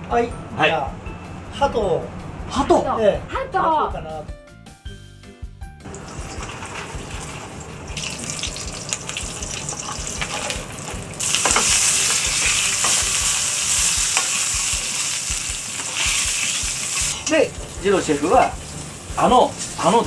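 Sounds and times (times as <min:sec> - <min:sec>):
meat sizzling in a skillet: 0:05.9 - 0:20.0
utensils clicking against a pan: 0:08.0 - 0:17.2.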